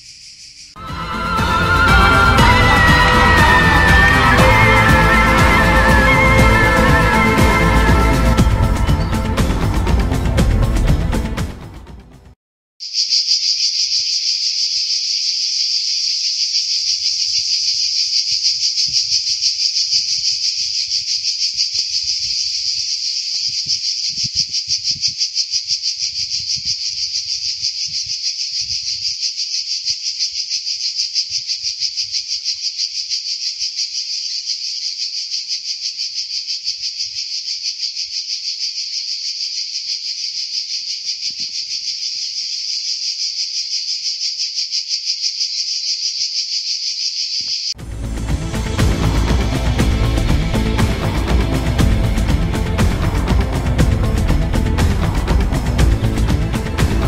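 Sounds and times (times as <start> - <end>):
cicadas buzzing: 0.0 - 10.1, 12.8 - 57.0.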